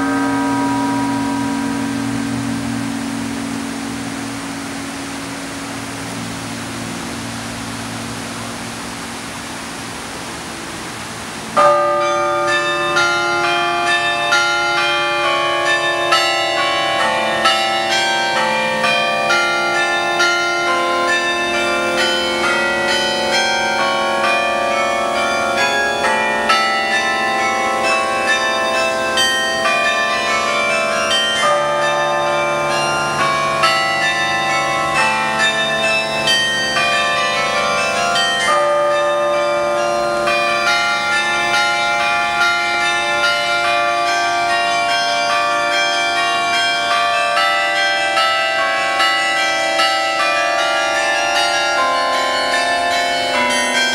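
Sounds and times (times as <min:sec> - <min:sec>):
carillon bells ringing a tune: 0:00.0 - 0:10.4, 0:11.4 - 0:53.9.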